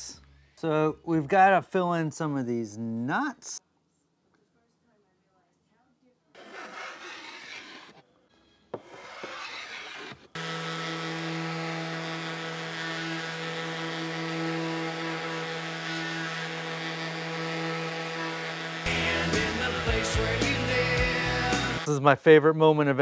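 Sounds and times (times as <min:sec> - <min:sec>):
hand tool scraping wood: 0:06.4 - 0:08.0, 0:08.8 - 0:19.6
orbital sander humming: 0:10.4 - 0:21.9
music: 0:16.7 - 0:22.0.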